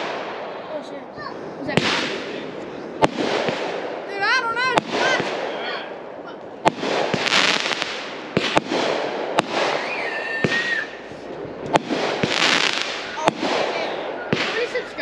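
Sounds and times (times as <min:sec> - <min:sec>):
fireworks bangs: 0:00.0 - 0:15.0
fireworks crackling hiss: 0:06.5 - 0:15.0
firework whistling tone: 0:07.0 - 0:15.0.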